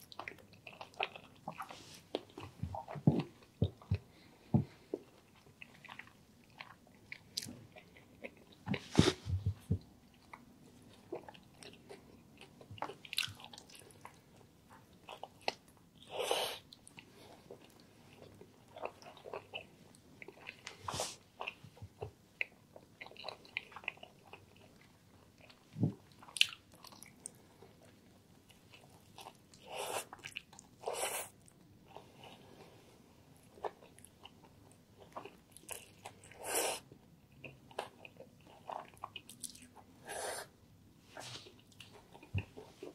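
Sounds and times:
chewing with wet mouth clicks: 4.9s - 8.8s, 21.4s - 27.9s.

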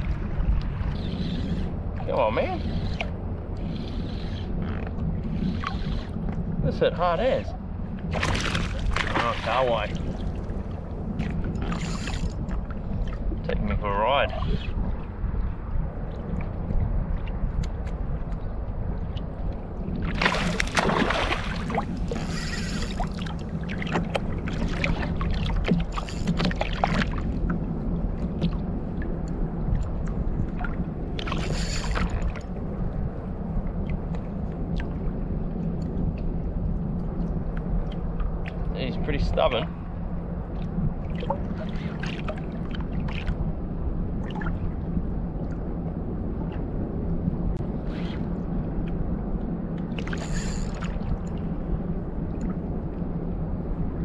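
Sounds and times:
light ticks and splashes: 0.0s - 6.5s, 8.0s - 39.7s, 40.5s - 43.5s, 48.8s - 51.6s, 52.3s - 52.6s
low rumble: 0.0s - 54.0s
water lapping against hull: 0.0s - 54.0s
wind and sea rush: 0.0s - 54.0s
water sloshing against kayak hull: 7.9s - 13.5s, 16.1s - 29.0s, 40.5s - 43.5s
water splashes: 8.1s - 15.1s, 19.0s - 29.0s, 40.5s - 43.4s.

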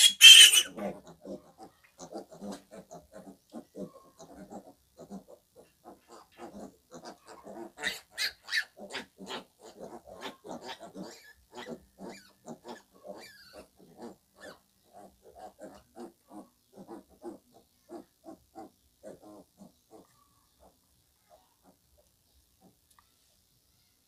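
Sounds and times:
piglets squealing: 0.0s - 5.2s, 6.9s - 16.2s
piglets grunting: 0.0s - 21.8s.

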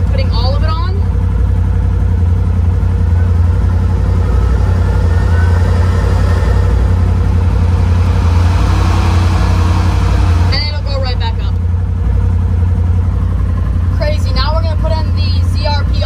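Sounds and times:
engine idling: 0.0s - 16.0s.

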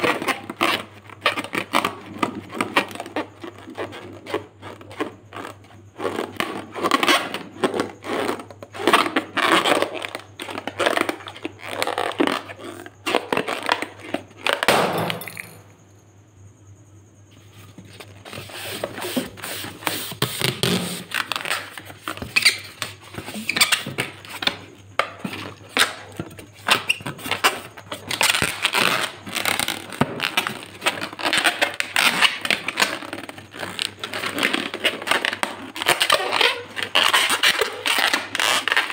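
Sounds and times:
hands rubbing balloons: 17.5s - 24.6s.

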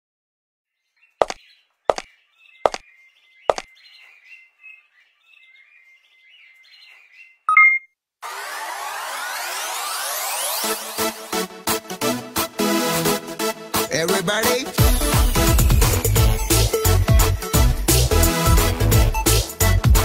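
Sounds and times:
birds chirping: 0.7s - 7.8s
sharp knocks: 1.2s - 2.0s
two-tone electronic beep: 7.5s - 7.9s
noisy rising sweep: 8.2s - 11.4s.

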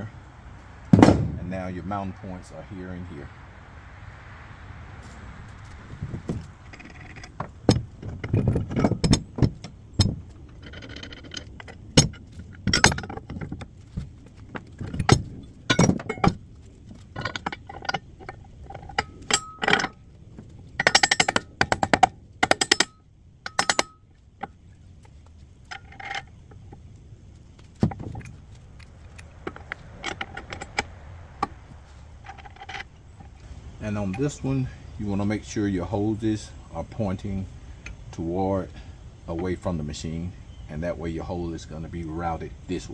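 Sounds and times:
steel parts clinking and knocking: 6.3s - 26.8s, 27.6s - 33.4s.

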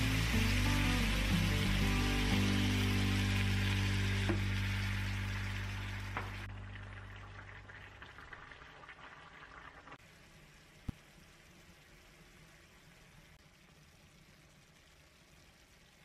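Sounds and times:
background music: 0.0s - 6.4s
food sizzling in a frying pan: 0.0s - 16.0s
pot boiling: 0.0s - 16.0s.

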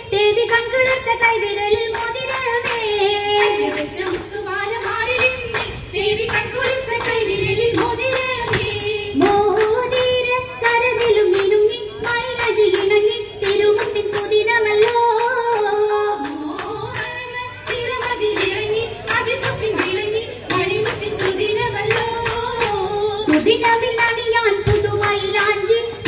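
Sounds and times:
rhythmic hand claps: 0.0s - 26.0s
woman singing over loudspeakers: 0.0s - 26.0s.

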